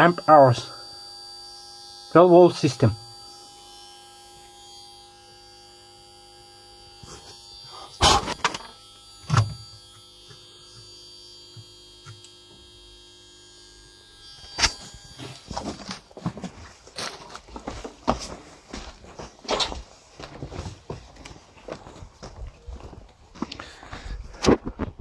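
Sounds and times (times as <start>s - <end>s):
electrical hum with high whine: 0.0s - 25.0s.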